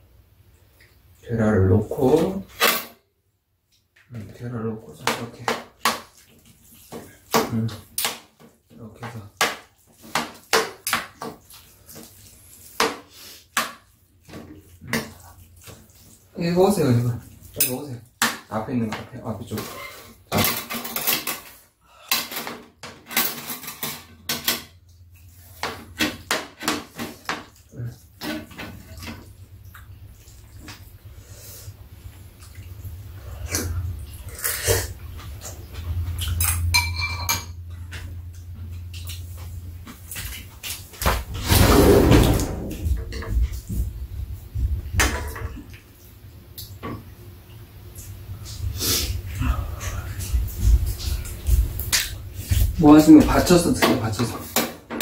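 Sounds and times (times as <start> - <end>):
utensils scraping a frying pan: 19.5 - 21.6.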